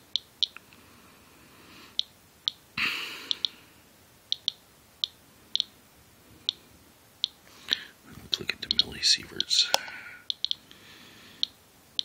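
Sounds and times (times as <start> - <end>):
geiger counter clicking: 0.0 - 0.6, 3.3 - 3.6, 4.3 - 5.8, 8.6 - 10.6.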